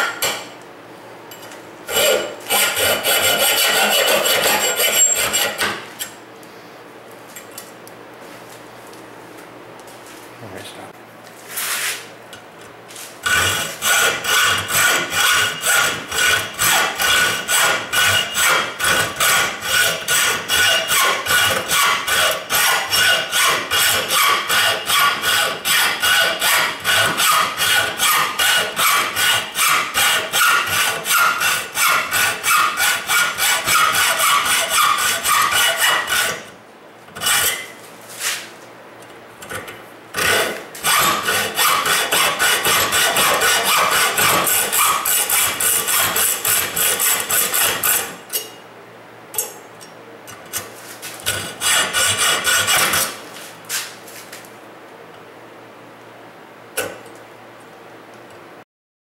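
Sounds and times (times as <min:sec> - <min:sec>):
hacksaw cutting metal pipe: 0:01.9 - 0:06.2, 0:13.2 - 0:36.5, 0:37.2 - 0:37.8, 0:39.4 - 0:48.6, 0:50.4 - 0:53.2.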